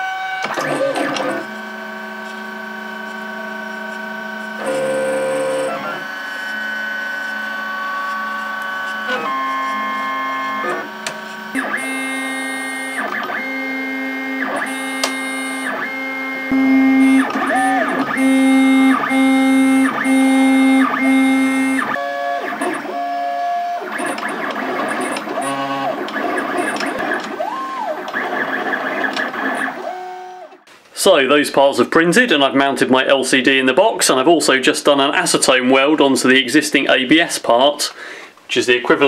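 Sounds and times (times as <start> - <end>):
stepper motors whining: 0.0 - 30.6.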